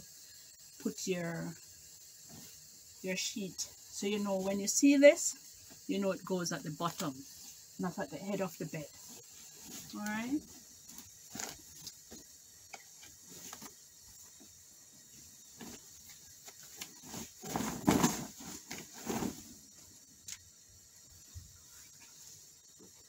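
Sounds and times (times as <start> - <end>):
bed sheet rustling and swishing: 15.2 - 19.6.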